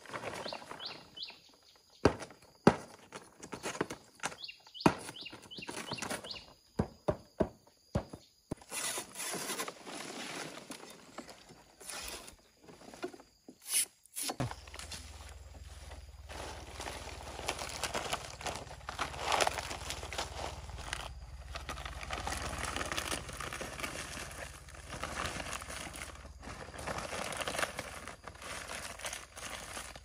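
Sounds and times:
small birds chirping: 0:00.2 - 0:02.6, 0:03.3 - 0:07.0
rustling: 0:08.7 - 0:30.0.

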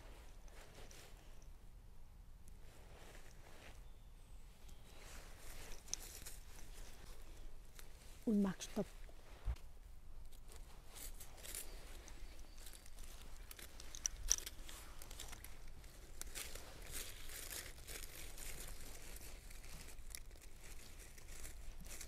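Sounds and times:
hands rustling through dry leaves: 0:02.7 - 0:09.7, 0:10.3 - 0:22.0
twig cracking: 0:09.5 - 0:22.0.

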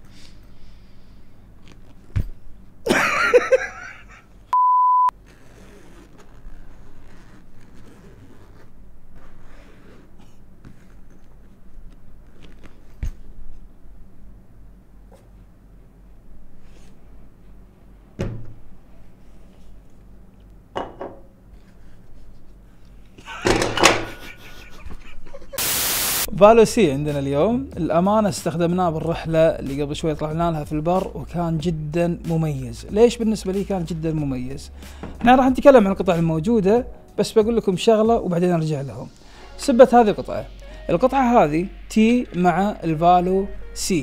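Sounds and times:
censor bleep: 0:04.6 - 0:05.1
loud burst of noise: 0:25.6 - 0:26.3.

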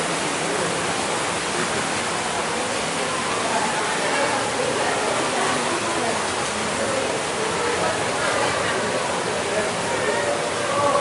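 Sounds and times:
rushing water: 0:00.0 - 0:11.0
faint voices of bathers: 0:02.2 - 0:11.0.

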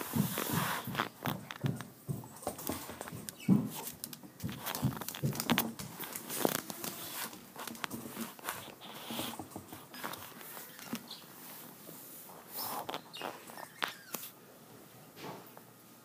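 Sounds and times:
rabbit tapping and rustling in cage: 0:00.0 - 0:11.0.

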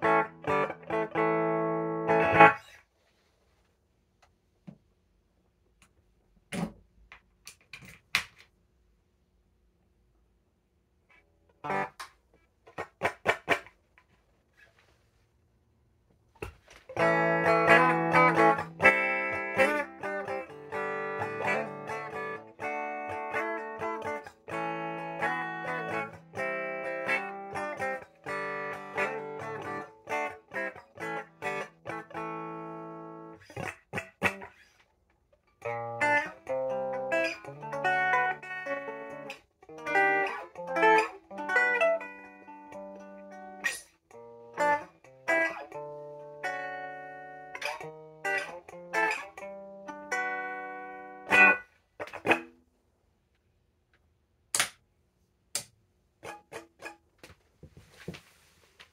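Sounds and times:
electric guitar playing: 0:00.0 - 0:02.7, 0:11.6 - 0:12.0, 0:16.9 - 0:34.7, 0:35.6 - 0:52.6.

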